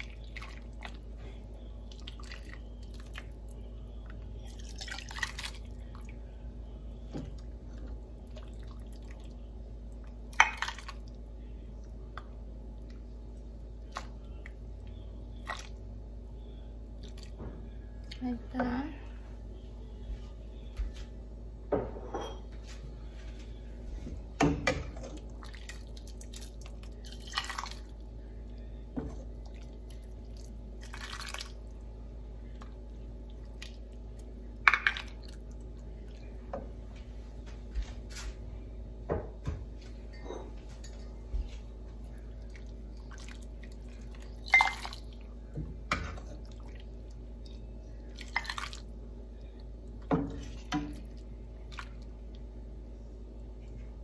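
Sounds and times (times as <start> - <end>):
low hum: 0.0 - 54.0
soup splashing and dripping: 29.4 - 31.7, 46.4 - 49.0.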